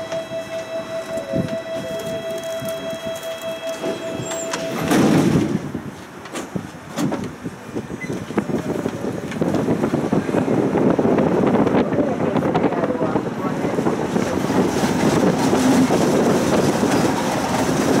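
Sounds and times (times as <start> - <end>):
tram door warning tone: 0.0 - 5.7
tram doors shutting with a thud: 0.0 - 11.6, 13.8 - 18.0
tram running noise: 0.0 - 18.0.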